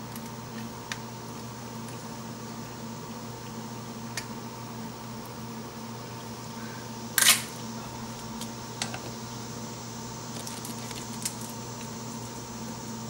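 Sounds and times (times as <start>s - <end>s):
crab shells cracking: 10.3s - 11.9s.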